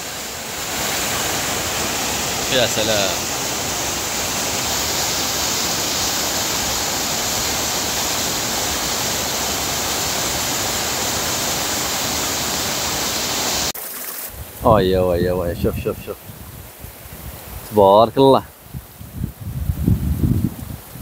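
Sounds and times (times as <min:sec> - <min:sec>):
waterfall pouring into pool: 0:00.0 - 0:14.4.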